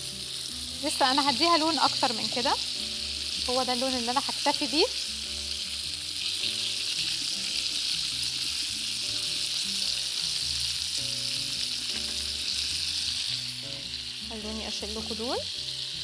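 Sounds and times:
meat sizzling in oil: 0.0 - 16.0
soft background music: 0.0 - 16.0.

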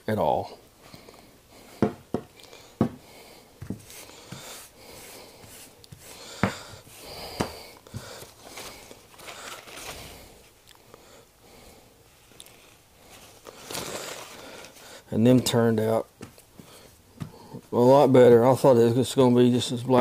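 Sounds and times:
paper rustling: 7.9 - 10.5, 12.2 - 15.0.

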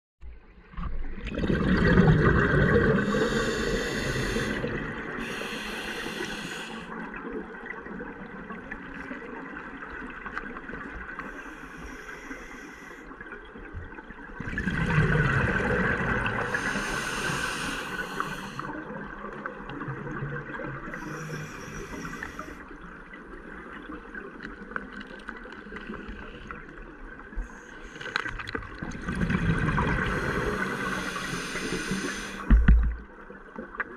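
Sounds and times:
underwater bubbling exhalation: 1.2 - 6.9, 14.4 - 22.4, 28.4 - 33.1
regulator breath hisses: 3.0 - 7.0, 11.3 - 13.1, 16.4 - 18.7, 20.9 - 22.6, 30.1 - 32.6.

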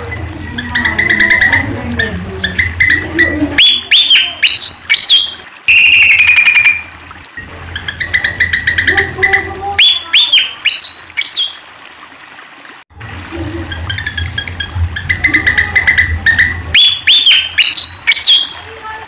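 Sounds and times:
bird fast chatter: 0.1 - 6.9, 7.7 - 11.6, 13.7 - 19.0
bird whistling song: 0.6 - 6.9, 7.8 - 11.6, 13.9 - 18.6.

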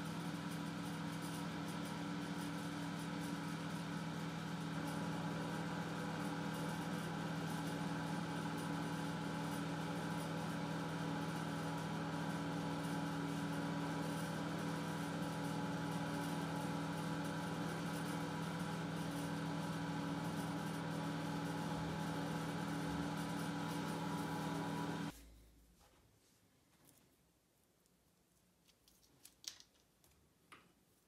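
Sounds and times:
low machine hum: 2.2 - 25.6.

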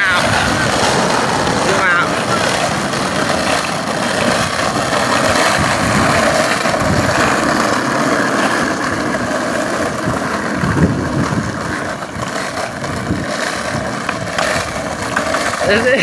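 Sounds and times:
skateboard wheels rolling on asphalt: 0.0 - 16.0.

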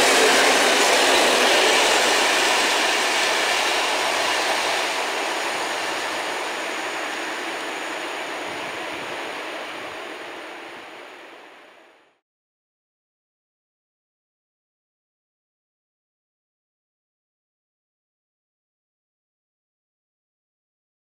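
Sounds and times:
freight train rolling on rails: 0.0 - 12.0.

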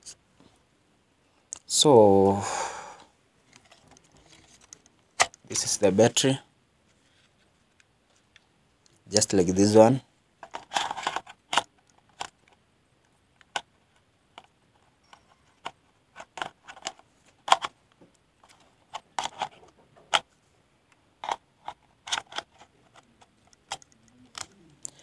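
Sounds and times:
hard plastic clicks and taps: 22.1 - 25.0.

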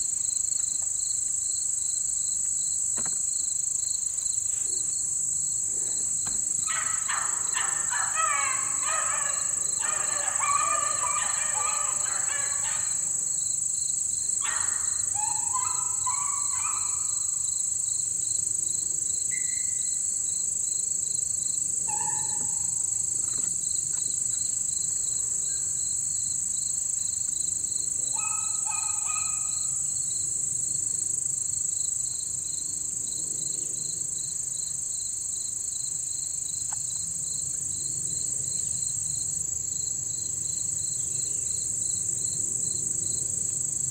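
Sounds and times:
crickets chirping: 0.0 - 43.9
insects droning: 0.0 - 43.9
hounds baying: 6.7 - 13.2, 14.4 - 17.2, 21.9 - 23.0, 28.1 - 29.8.

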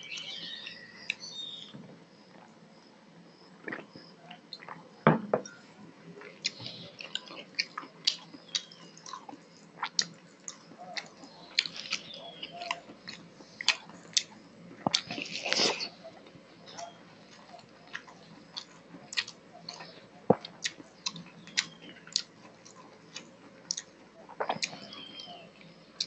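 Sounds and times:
glass set down on wooden table: 5.1 - 5.6
wet chewing: 6.2 - 26.0.

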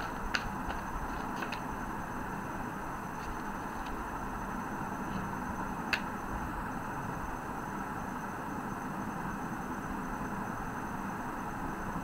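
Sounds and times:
background hiss and hum: 0.0 - 12.0.

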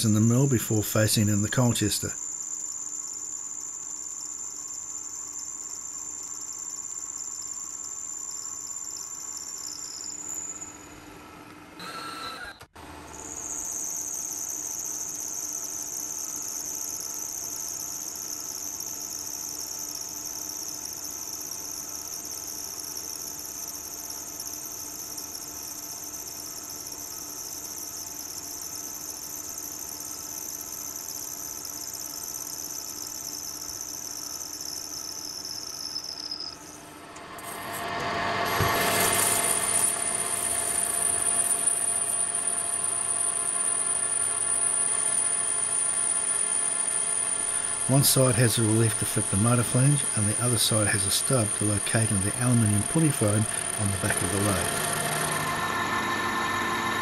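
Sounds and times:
milling machine whine: 37.0 - 57.0
lathe cutting metal: 37.2 - 57.0.

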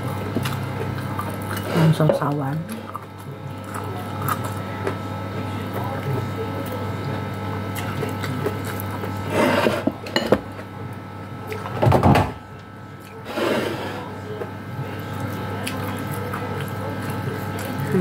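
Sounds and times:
chewing: 0.0 - 9.3, 14.9 - 18.0.

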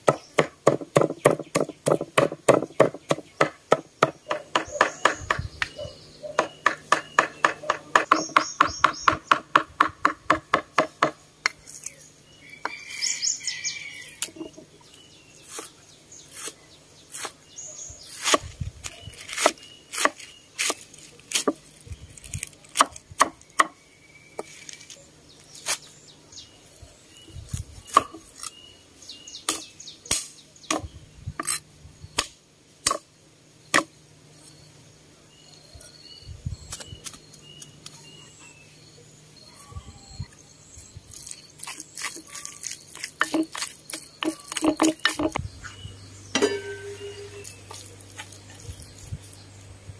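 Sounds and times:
cleaver chopping on wooden block: 0.0 - 5.7, 6.4 - 11.2, 22.8 - 23.8, 32.2 - 33.0, 43.2 - 45.4
birds chirping: 0.0 - 32.3, 33.6 - 49.9.

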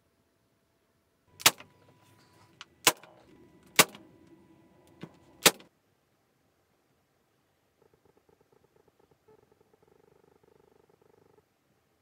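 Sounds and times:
nail gun snapping: 1.4 - 1.7, 2.6 - 4.0, 5.4 - 5.7.

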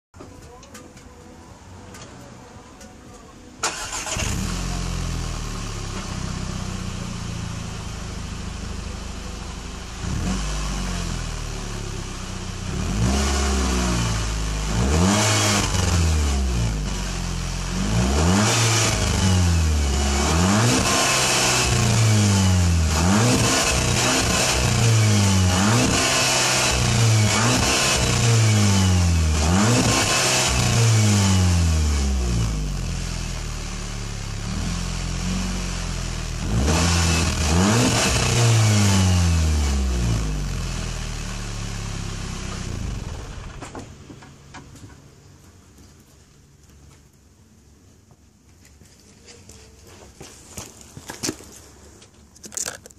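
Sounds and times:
car engine starting and idling: 0.2 - 45.4
engine revving in throttle blips: 9.8 - 33.1, 34.3 - 43.7.

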